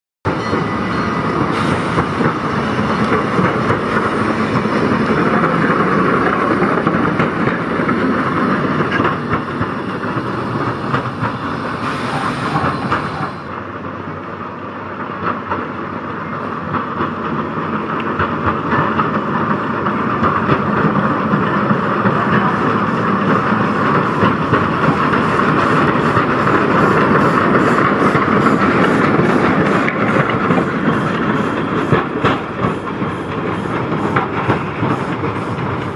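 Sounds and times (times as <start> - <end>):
wheels clicking on rails: 0.3 - 13.4, 15.0 - 35.9
steam locomotive running: 0.3 - 35.9
steam hiss: 1.3 - 3.2, 10.0 - 13.5.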